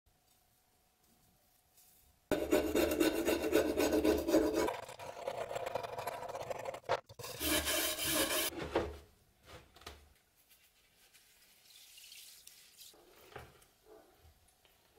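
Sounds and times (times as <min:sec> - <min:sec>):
metal scraper scraping rust: 0:02.3 - 0:08.5.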